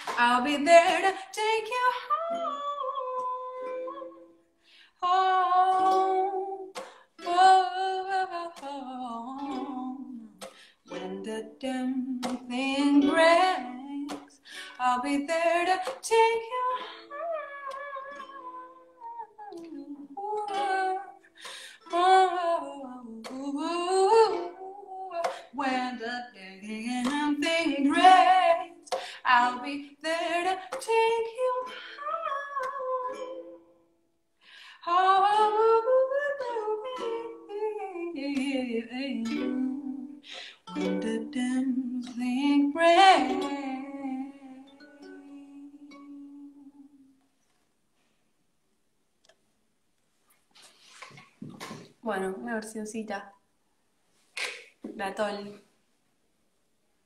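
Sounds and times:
woman singing: 0.0s - 4.4s, 5.0s - 33.7s, 34.8s - 47.1s
ukulele: 0.0s - 48.2s, 50.3s - 52.6s, 54.1s - 55.8s.

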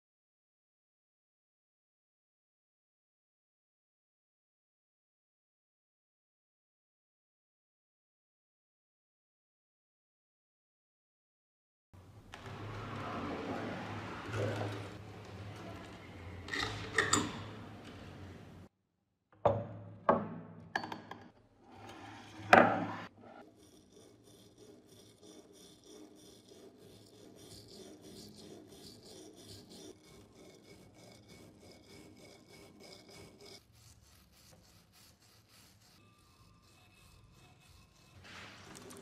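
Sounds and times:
brush scrubbing metal: 23.2s - 39.0s.

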